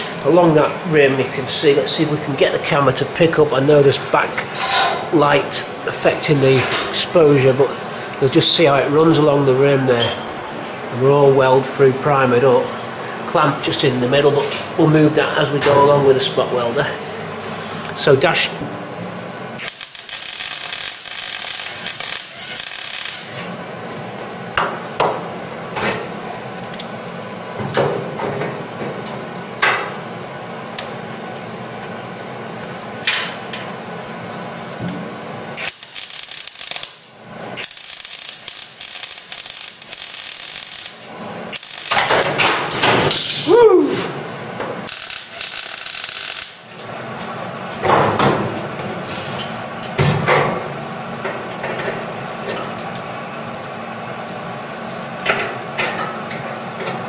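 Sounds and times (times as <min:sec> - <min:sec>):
welder arcing with crackling hiss: 0:19.6 - 0:23.6, 0:35.6 - 0:42.3, 0:44.9 - 0:46.9.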